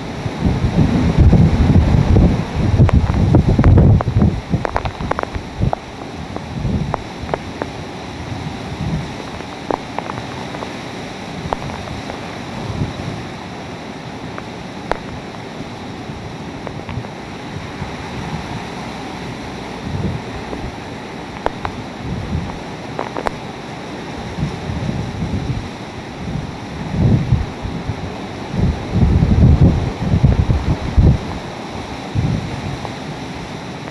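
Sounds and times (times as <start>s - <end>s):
heavy rain: 0.0s - 33.9s
hurricane-force wind: 0.0s - 33.9s
wind buffeting microphone: 0.0s - 33.9s
sharp ticks: 2.8s - 7.8s, 9.2s - 10.7s, 11.5s - 12.3s, 14.4s - 15.4s, 21.3s - 21.8s, 23.0s - 23.4s.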